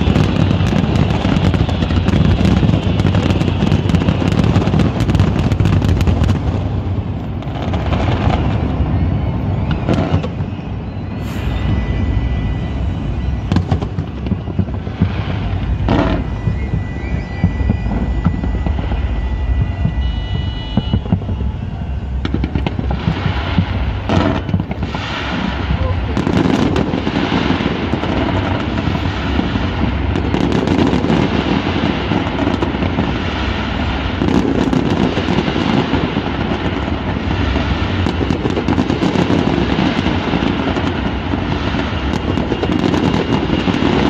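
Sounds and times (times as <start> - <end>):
fireworks bangs and crackle: 0.0 - 44.0
low rumble: 6.0 - 30.3.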